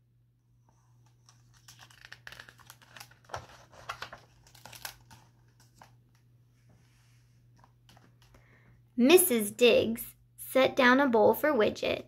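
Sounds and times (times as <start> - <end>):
book pages rustling: 0.7 - 8.4.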